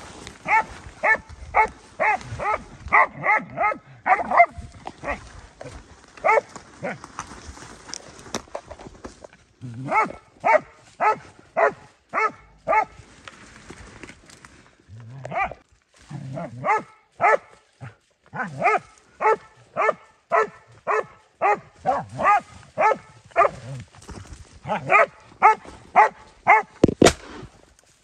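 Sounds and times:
dog barking: 0.4 - 5.2, 6.2 - 7.0, 9.8 - 13.0, 15.3 - 15.6, 16.4 - 23.7, 24.6 - 26.8.

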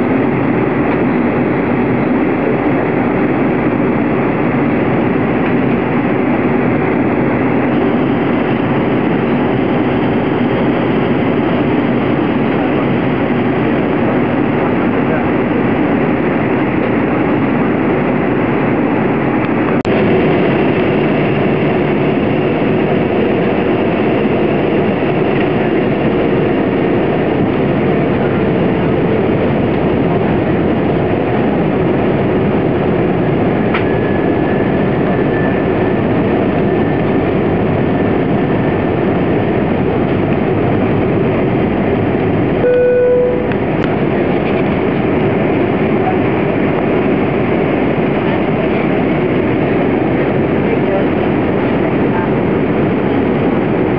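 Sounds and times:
airplane cabin engine rush: 0.0 - 53.9
brief tone: 42.6 - 43.6.

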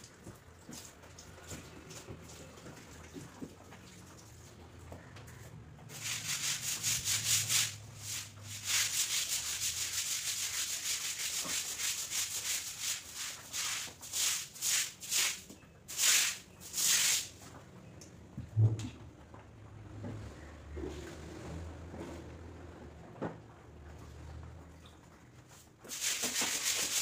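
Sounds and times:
scrubbing wet cement floor: 5.9 - 17.4, 25.8 - 27.0
stiff broom sweeping wet floor: 5.9 - 17.5, 25.6 - 27.0.

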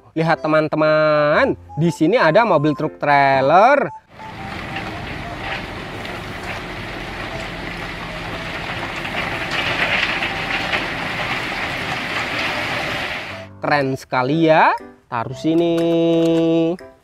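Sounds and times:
diesel engine running: 4.1 - 13.5
stone pouring and rattling: 4.1 - 13.5.

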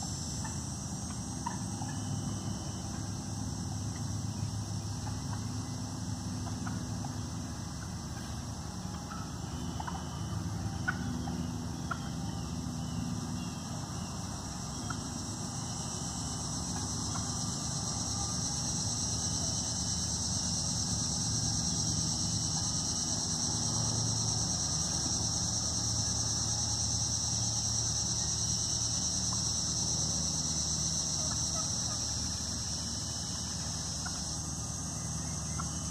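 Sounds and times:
insect chorus drone: 0.0 - 35.9
wild turkey clucks: 0.4 - 3.1, 6.4 - 14.1, 14.7 - 15.9, 31.2 - 32.6, 34.0 - 34.4.

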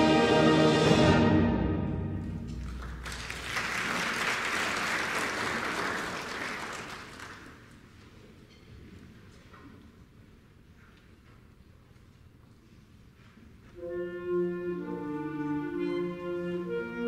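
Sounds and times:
audience applauding: 2.5 - 7.9.

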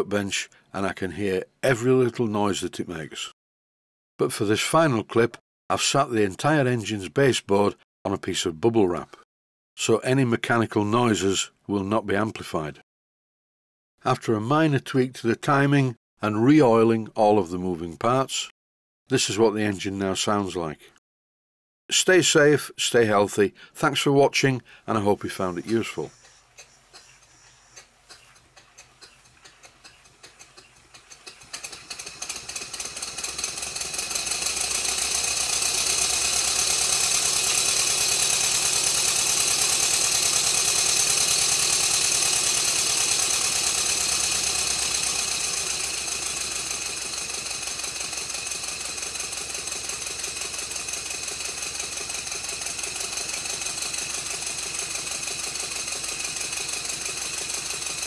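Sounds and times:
model steam engine running: 28.8 - 58.0.

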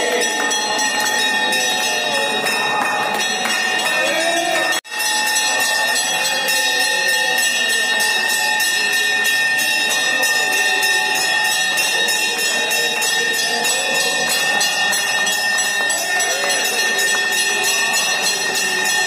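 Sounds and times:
hand clapping: 0.0 - 6.6, 11.7 - 19.0
brass bells ringing: 0.0 - 19.0
voices singing: 0.0 - 19.0.

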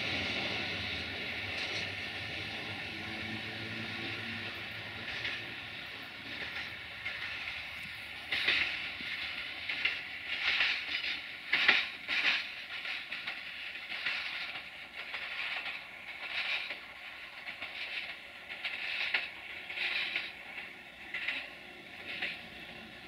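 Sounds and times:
railcar rolling over track: 0.0 - 23.0
train wheels screeching: 0.0 - 23.0.

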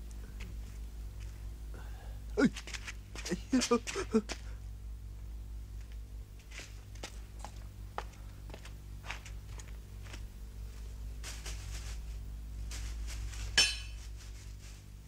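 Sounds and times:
soft footsteps on hard ground: 0.0 - 1.7, 2.4 - 15.0
low steady hum: 0.0 - 15.0
soft rustles: 8.6 - 15.0.

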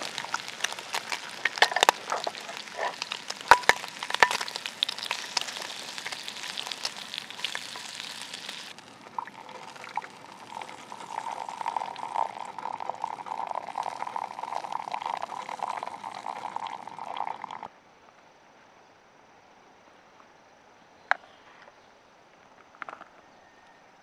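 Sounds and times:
beef sizzling in a pan: 0.0 - 17.6
liquid pouring into container: 0.0 - 17.7.

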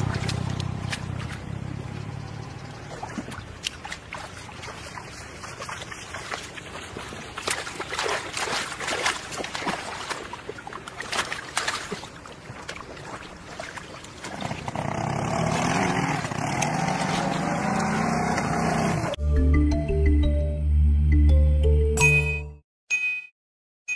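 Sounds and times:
hands splashing in muddy water: 0.0 - 1.6, 2.8 - 14.8.

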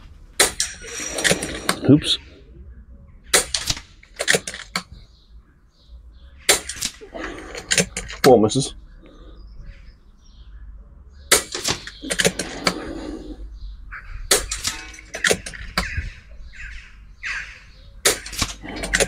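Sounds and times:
small birds chirping: 0.8 - 19.0
air rifle shots: 3.3 - 4.8, 6.4 - 7.1, 11.3 - 12.9, 14.2 - 16.0, 18.0 - 19.0.

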